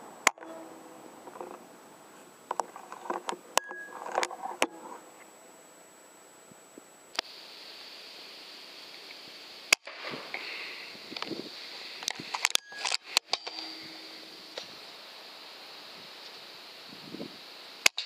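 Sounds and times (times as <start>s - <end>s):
air rifle firing: 9.7s - 10.5s.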